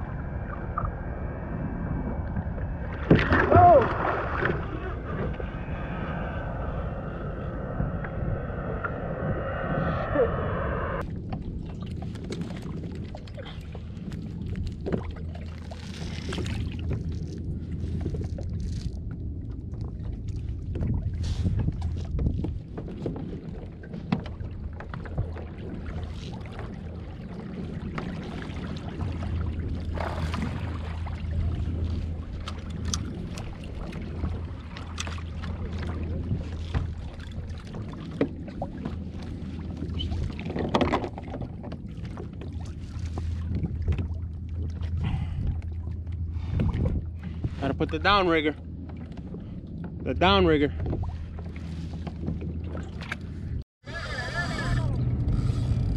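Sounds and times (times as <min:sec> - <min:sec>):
water washing against hull: 0:00.0 - 0:55.9
wind on microphone: 0:00.0 - 0:55.9
outboard motor humming: 0:23.8 - 0:55.9
knocks against hull: 0:40.4 - 0:41.8.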